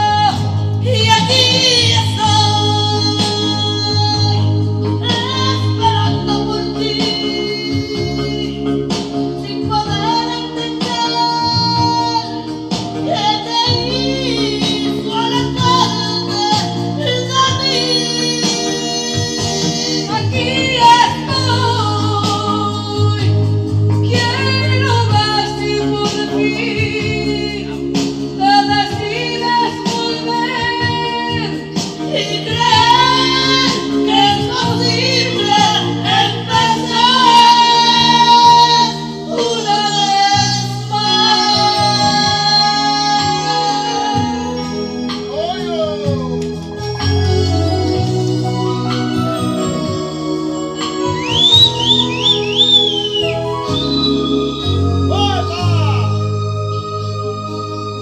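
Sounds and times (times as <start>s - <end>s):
women singing into microphones: 0.0s - 45.3s
recorded backing music: 0.0s - 58.0s.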